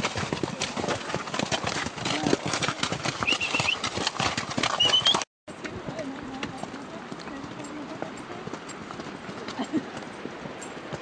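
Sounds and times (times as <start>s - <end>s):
horse hooves clip-clopping: 0.0s - 11.0s.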